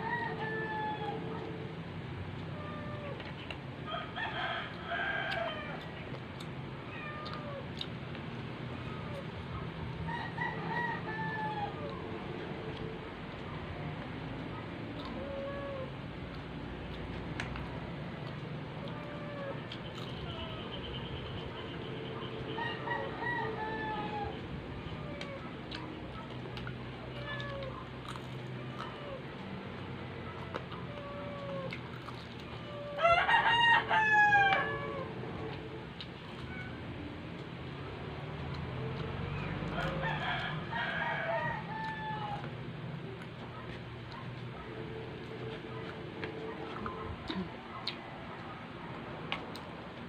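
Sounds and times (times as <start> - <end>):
rooster crowing: 0.0 - 1.5, 3.8 - 5.9, 10.0 - 12.0, 22.5 - 24.4, 32.7 - 35.5, 38.9 - 42.6
steady low hum: 0.0 - 50.0
chickens clucking: 7.2 - 50.0.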